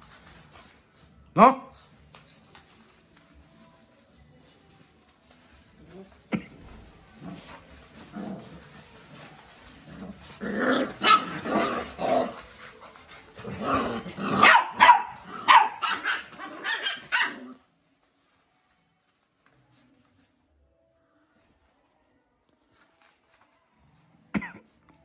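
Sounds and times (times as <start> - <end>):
puppies barking and yipping: 7.4 - 13.4, 14.1 - 17.6.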